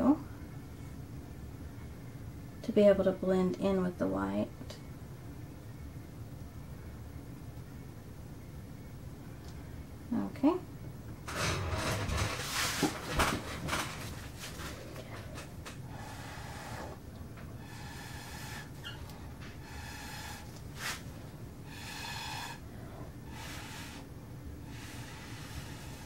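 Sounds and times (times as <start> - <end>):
person blowing out air: 21.7 - 22.6.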